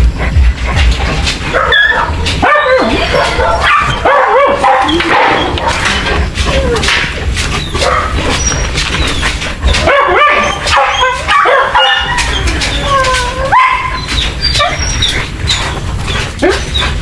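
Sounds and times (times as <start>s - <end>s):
dogs whining and yelping: 0.0s - 17.0s.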